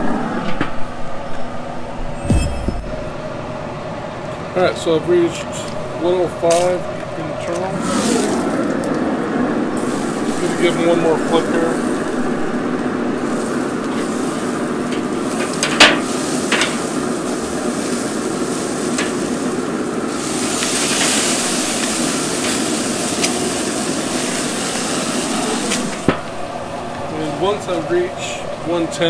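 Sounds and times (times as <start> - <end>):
steaks sizzling on grill: 7.5 - 8.9, 9.5 - 29.0
metal tongs clacking on grate: 14.9 - 16.9, 18.8 - 19.3, 21.8 - 23.4.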